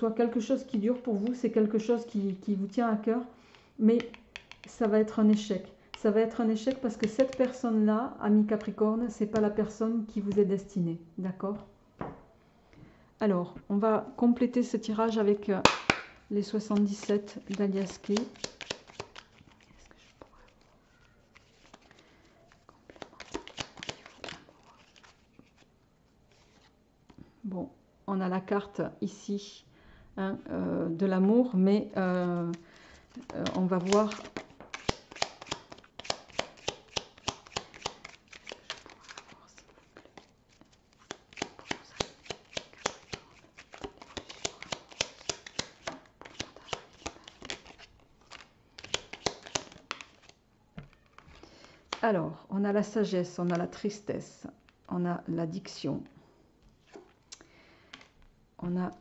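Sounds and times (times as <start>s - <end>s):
cards being shuffled: 6.6s - 7.6s, 15.6s - 25.7s, 26.3s - 26.8s, 32.2s - 52.0s.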